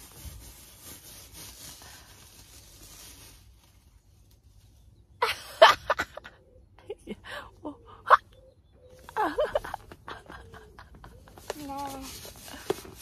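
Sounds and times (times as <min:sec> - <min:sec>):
balloon rubbing against hair: 0:00.0 - 0:03.6.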